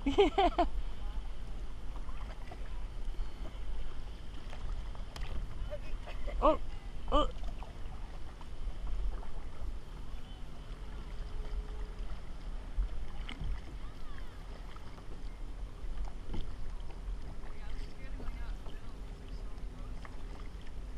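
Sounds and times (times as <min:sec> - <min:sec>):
paddle splash: 0:00.0 - 0:20.9
lapping water: 0:04.3 - 0:09.7.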